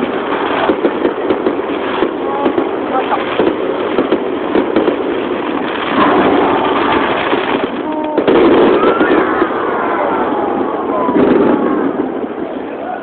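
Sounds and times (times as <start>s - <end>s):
crackling pops: 0.0s - 9.8s
firework shells bursting: 0.0s - 9.8s.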